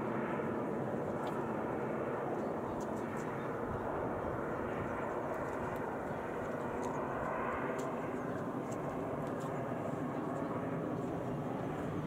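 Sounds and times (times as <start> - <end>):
distant jet aircraft rushing: 0.0 - 12.0.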